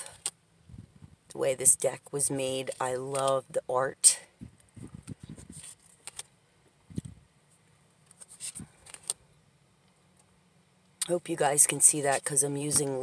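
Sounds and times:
cards rustling and thumping: 0:05.1 - 0:06.3, 0:08.0 - 0:09.2.

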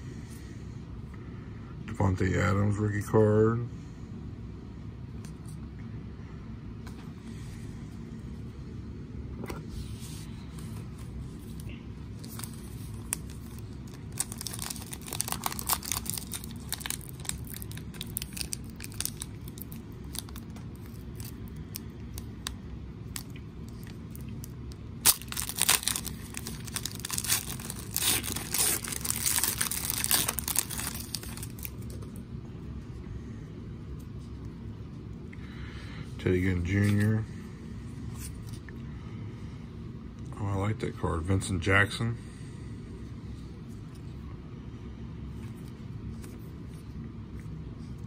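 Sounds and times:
low steady hum: 0:00.0 - 0:48.0
foil pack crinkling: 0:12.2 - 0:32.0.

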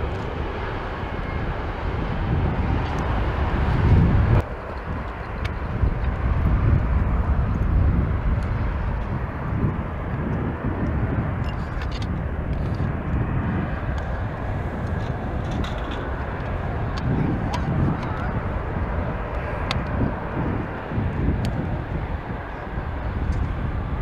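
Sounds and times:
jet engines running: 0:00.0 - 0:24.0.

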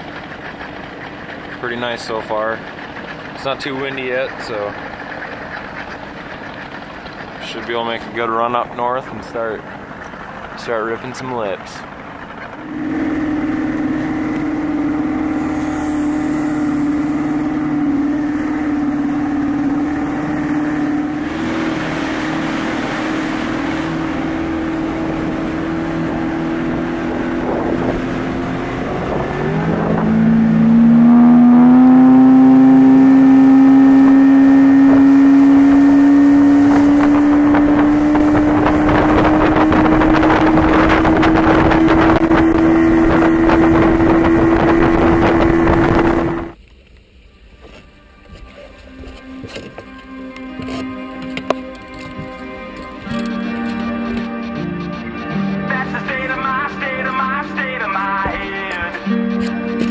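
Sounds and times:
outboard motor running: 0:00.0 - 0:46.6, 0:48.2 - 0:59.9
wind on microphone: 0:12.0 - 0:46.6.

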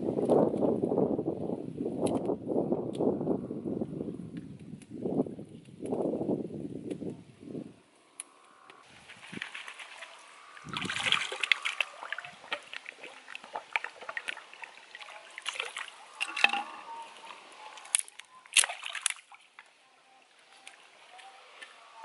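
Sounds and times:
stream water splashing: 0:08.9 - 0:19.8.

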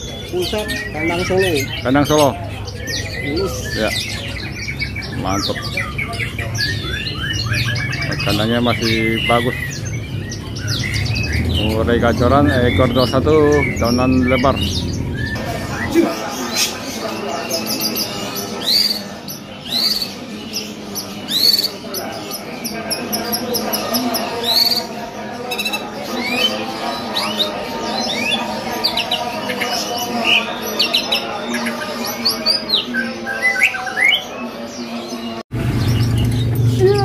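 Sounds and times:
bird singing whistled notes: 0:00.0 - 0:16.1, 0:17.5 - 0:20.6
birds chirping: 0:00.0 - 0:37.0.

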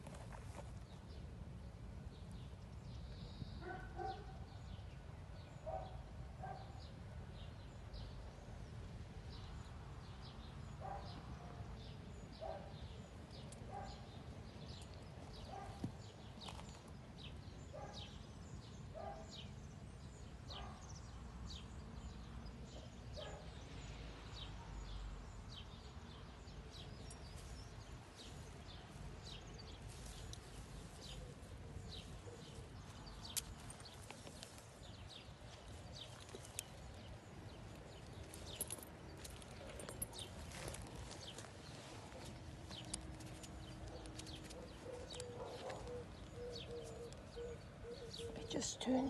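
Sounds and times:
rustling and footfalls in grass: 0:27.4 - 0:36.6.

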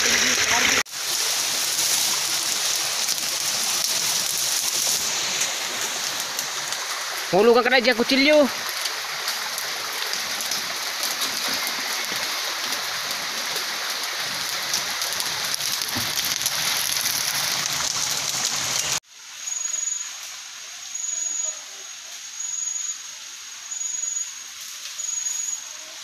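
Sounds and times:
river water running over rocks: 0:00.0 - 0:20.9
thin high steady tone: 0:18.9 - 0:25.9.

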